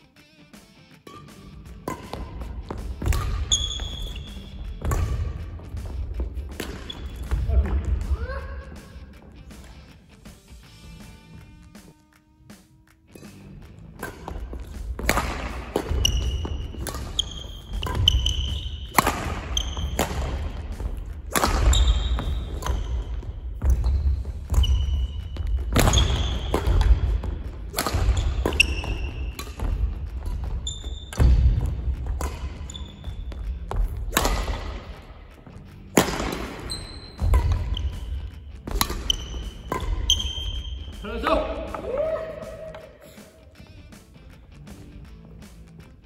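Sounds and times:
shoe squeaks on court: 1.0 - 7.5, 13.1 - 41.8
racket hitting shuttlecock: 1.0 - 8.1, 13.1 - 43.0.

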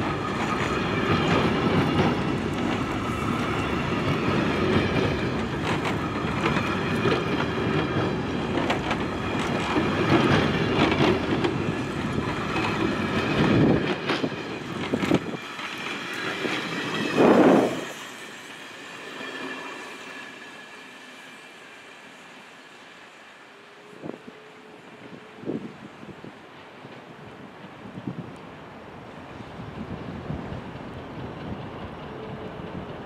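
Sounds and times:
train wheels clicking over rails: 0.0 - 20.6, 29.4 - 33.0
loud rush of train: 0.0 - 33.0.

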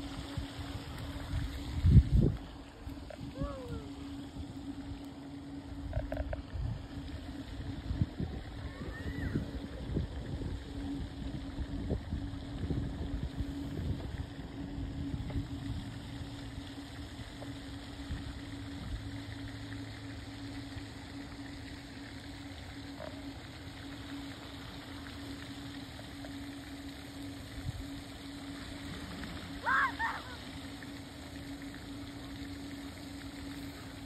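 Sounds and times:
wind rumbling on microphone: 0.0 - 5.0, 5.6 - 19.3
steady motor hum: 0.0 - 34.0.

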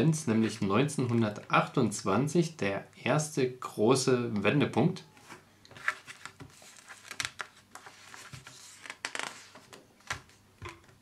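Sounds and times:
magazine pages rustling: 5.2 - 10.4.

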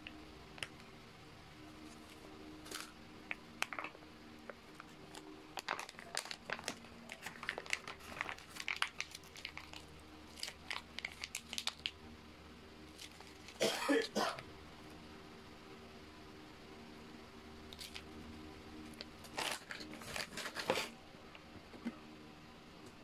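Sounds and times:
foil pouch crinkling: 1.9 - 3.0, 3.6 - 4.0, 4.7 - 12.0, 12.9 - 13.6, 17.8 - 18.0, 18.9 - 21.0.

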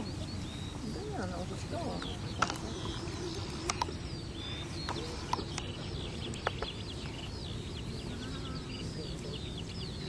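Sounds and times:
small birds chirping: 0.0 - 10.0
sharp clicks: 3.6 - 4.0.

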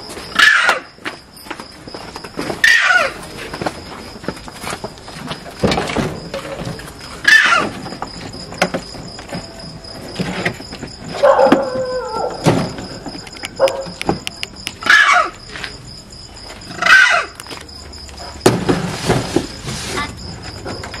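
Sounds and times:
animal crying out: 0.4 - 0.9, 2.6 - 3.2, 7.2 - 7.8, 11.2 - 12.4, 14.8 - 15.4, 16.7 - 17.4.

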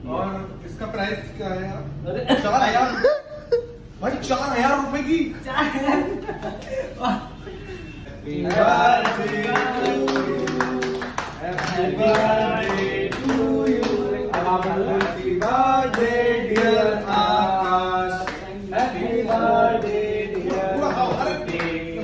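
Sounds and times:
men singing: 8.1 - 22.0
rhythmic hand-clapping: 8.2 - 22.0.

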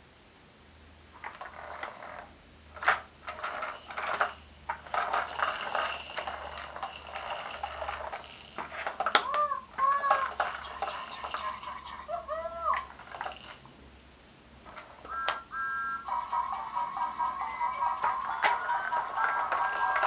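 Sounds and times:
plastic toy wheels rolling: 1.2 - 13.7, 14.6 - 20.0
beads rattling in toy: 1.2 - 13.8, 17.2 - 20.0.

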